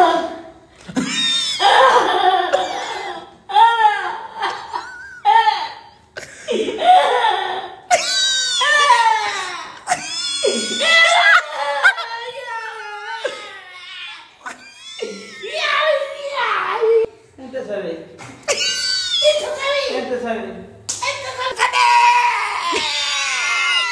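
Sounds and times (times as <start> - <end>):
men laughing loudly: 0.9 - 2.9, 3.8 - 5.6, 6.2 - 15.7, 18.5 - 19.3.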